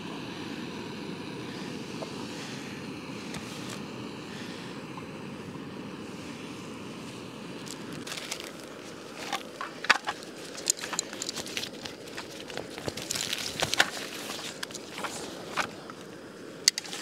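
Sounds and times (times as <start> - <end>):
packet crinkling and rustling: 7.6 - 15.8.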